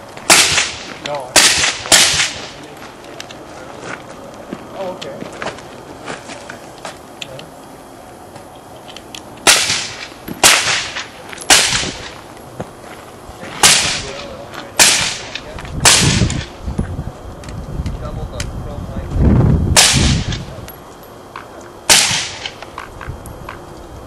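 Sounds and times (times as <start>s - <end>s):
suppressed pistol shots: 0.3s - 0.8s, 1.4s - 2.5s, 9.4s - 12.1s, 14.8s - 16.5s, 19.8s - 20.4s, 21.9s - 22.7s.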